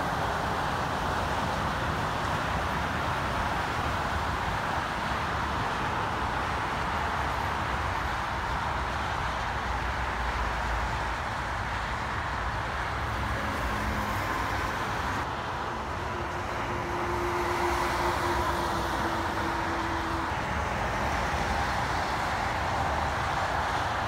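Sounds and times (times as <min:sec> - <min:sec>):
highway traffic passing: 0:00.0 - 0:24.0
truck passing hum: 0:12.4 - 0:24.0.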